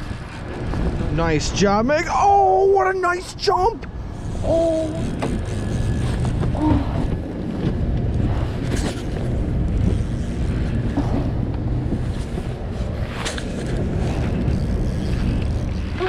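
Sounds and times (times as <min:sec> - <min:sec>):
wind buffeting microphone: 0:00.0 - 0:16.0
water lapping against hull: 0:03.9 - 0:12.8.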